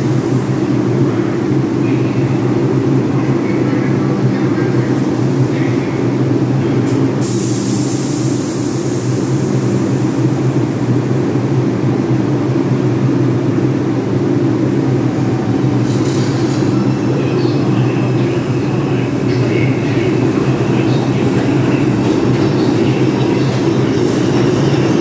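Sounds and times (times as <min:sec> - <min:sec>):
subway train rumbling and humming: 0:00.0 - 0:25.0.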